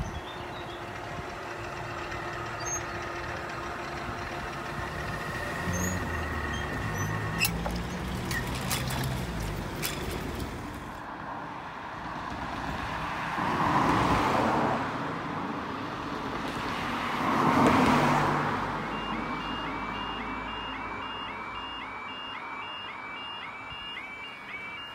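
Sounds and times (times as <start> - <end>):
level crossing warning alarm: 0.0 - 8.1, 18.6 - 24.9
cars passing: 0.0 - 24.9.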